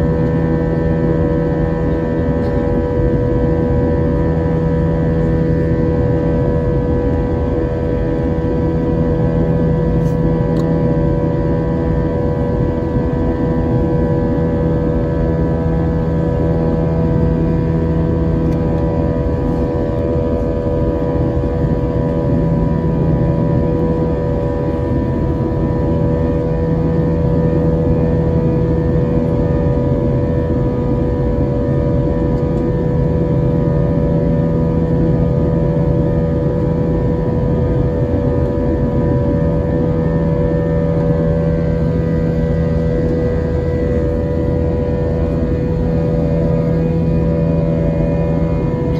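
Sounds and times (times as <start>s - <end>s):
jet engine cabin drone: 0.0s - 48.9s.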